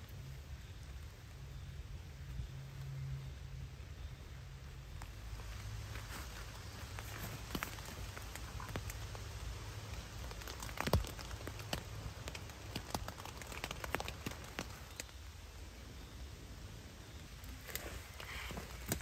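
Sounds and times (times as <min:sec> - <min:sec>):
low steady rumble: 0:00.0 - 0:19.0
raindrops tapping on a tarp: 0:05.0 - 0:15.3, 0:17.4 - 0:19.0.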